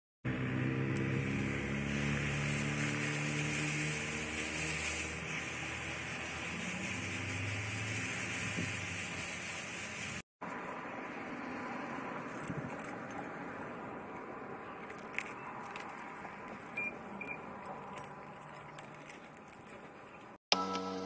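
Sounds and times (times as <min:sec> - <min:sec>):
vehicle engine humming: 0:00.2 - 0:21.0
hose nozzle spraying water: 0:00.4 - 0:10.2.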